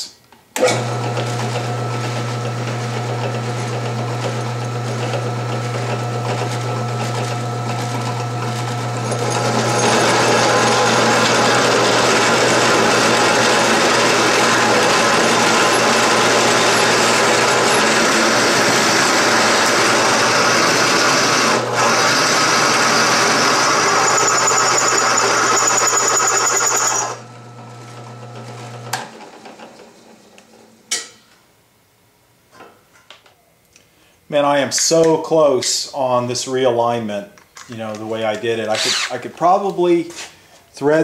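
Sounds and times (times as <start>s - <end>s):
drill bit cutting metal: 1.2s - 27.6s, 38.7s - 39.2s.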